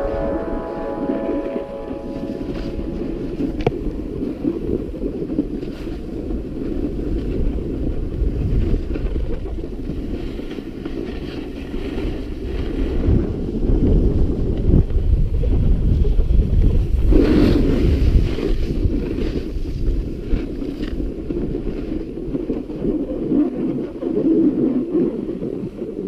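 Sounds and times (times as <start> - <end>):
wind buffeting microphone: 0.0 - 26.0
skis sliding on packed snow: 0.1 - 26.0.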